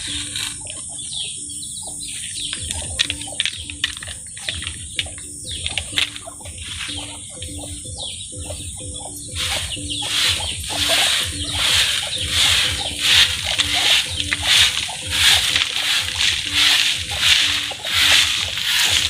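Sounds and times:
birds chirping: 0:00.0 - 0:19.0
steady high-pitched hiss: 0:00.0 - 0:19.0
scraper knocking and scraping dirt: 0:09.4 - 0:19.0.

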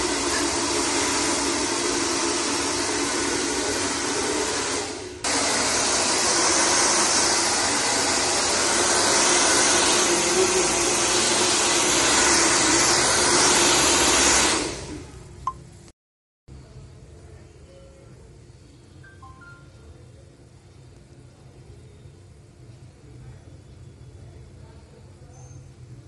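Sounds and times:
hair dryer whirring: 0:00.0 - 0:15.2.

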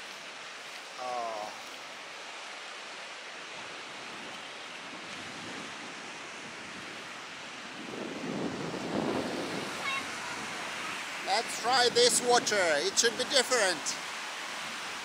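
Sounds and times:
surf washing up beach: 0:00.0 - 0:15.0
strong wind: 0:03.4 - 0:15.0.

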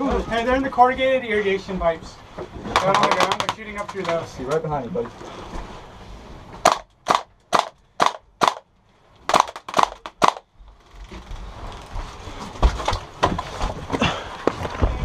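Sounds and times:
airsoft gun shots: 0:06.6 - 0:08.6, 0:09.3 - 0:10.4
rustling and thumping movement: 0:09.3 - 0:15.0.

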